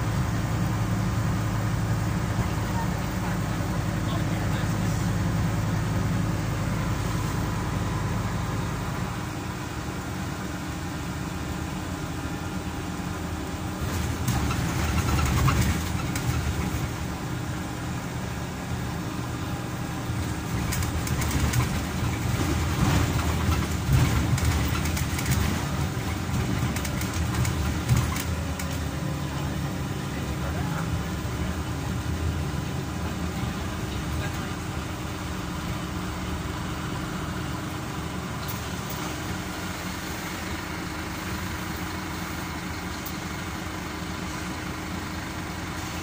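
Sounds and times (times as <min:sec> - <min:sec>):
bus engine drone: 0:00.0 - 0:46.0
road noise: 0:00.0 - 0:46.0
bodywork knocks and rattles: 0:13.9 - 0:17.0, 0:20.5 - 0:28.8.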